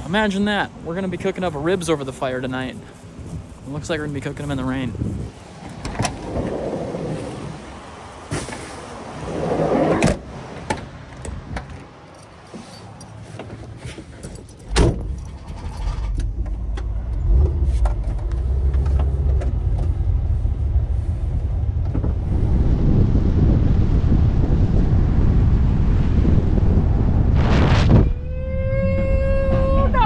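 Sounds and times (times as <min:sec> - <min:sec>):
van engine rumbling: 0:00.0 - 0:22.9.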